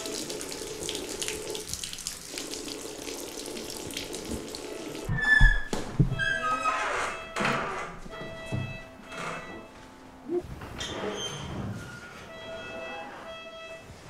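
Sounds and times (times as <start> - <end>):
tap water running into sink: 0.0 - 6.2.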